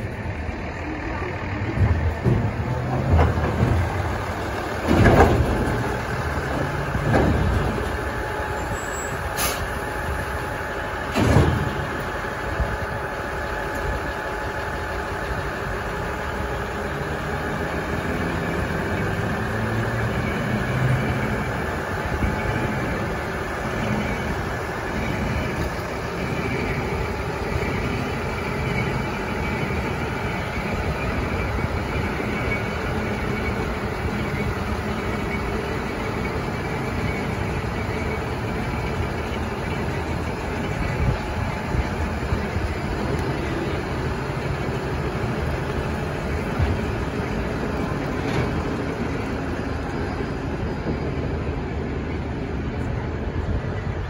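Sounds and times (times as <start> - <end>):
diesel engine idling: 0.0 - 54.0
heavy metallic clunks: 1.6 - 8.0, 11.0 - 12.0.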